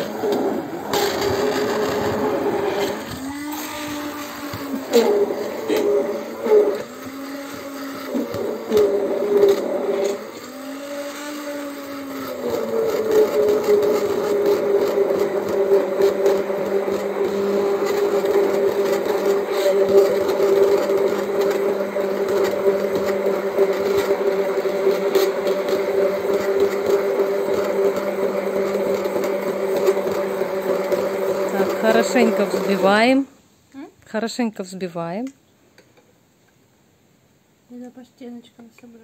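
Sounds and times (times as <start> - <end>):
immersion blender whining: 0.0 - 33.3.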